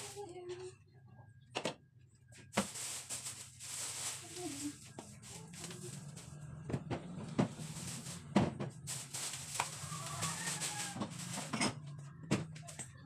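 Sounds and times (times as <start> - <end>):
groceries knocking on fridge shelves: 2.4 - 13.0
rustling: 2.5 - 6.4, 7.5 - 11.6.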